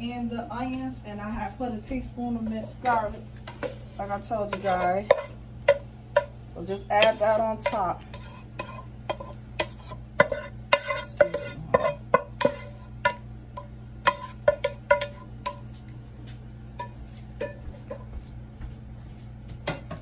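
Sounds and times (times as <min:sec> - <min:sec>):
metal utensil scraping a pan: 0:02.6 - 0:06.3, 0:06.9 - 0:15.6.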